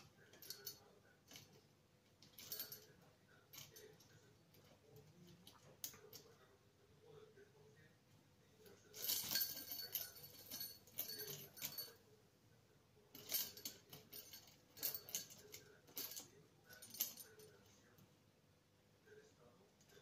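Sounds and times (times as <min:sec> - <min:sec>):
small metal bell jingling: 0:02.2 - 0:04.0, 0:08.9 - 0:12.0, 0:13.2 - 0:17.6.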